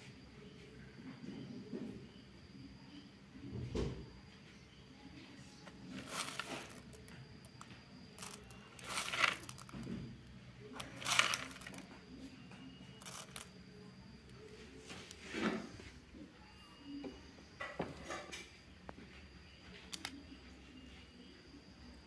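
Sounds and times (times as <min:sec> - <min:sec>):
metal pellets rattling and clinking: 0:05.9 - 0:09.9, 0:10.8 - 0:11.9, 0:12.9 - 0:13.6.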